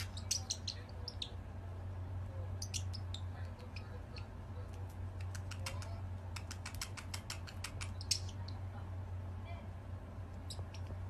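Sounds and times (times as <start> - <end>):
parrot high chirp: 0.0 - 1.4, 10.4 - 11.0
steady low hum: 0.0 - 11.0
parrot beak clicks: 3.6 - 8.3.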